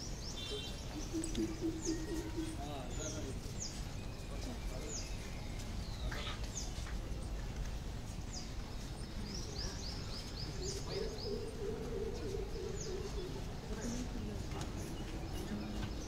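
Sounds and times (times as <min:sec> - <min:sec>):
outdoor background noise: 0:00.0 - 0:16.0
small birds chirping: 0:00.0 - 0:16.0
low steady drone: 0:00.6 - 0:03.4.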